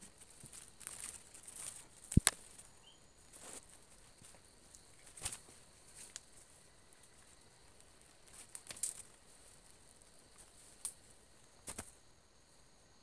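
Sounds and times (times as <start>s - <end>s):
footsteps on dry leaves: 0.2s - 6.6s.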